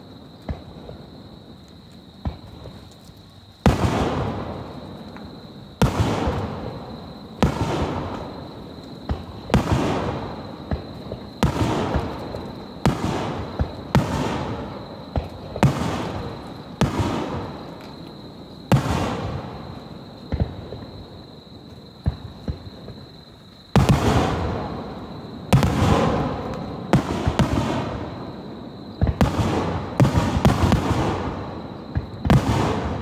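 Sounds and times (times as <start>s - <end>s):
small firework pops: 0.0s - 28.1s, 28.9s - 33.0s
firework shells booming: 3.7s - 18.0s, 23.8s - 28.3s, 28.9s - 33.0s.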